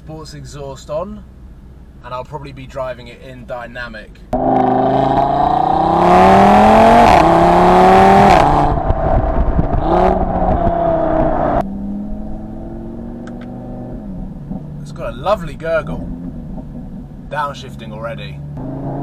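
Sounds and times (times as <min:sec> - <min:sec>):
car engine revving: 0:04.3 - 0:19.0.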